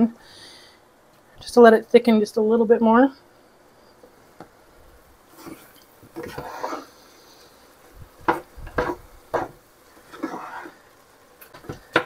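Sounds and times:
sauce simmering: 3.3 - 12.0
spoon scraping pot: 5.3 - 7.5, 8.3 - 10.8
cookware knocking: 8.3 - 9.6.

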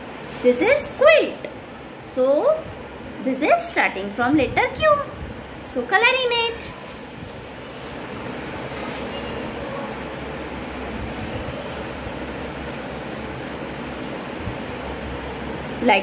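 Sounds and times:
crayon scribbling on paper: 7.0 - 15.7.

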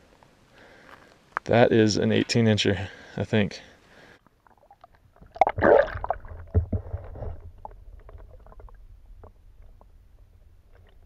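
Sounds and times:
water splash: 5.3 - 8.8.

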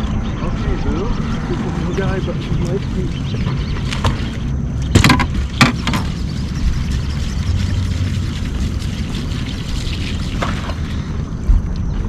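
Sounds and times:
steady low rumble: 0.0 - 12.0
landing net knocking against boat: 4.9 - 6.1.

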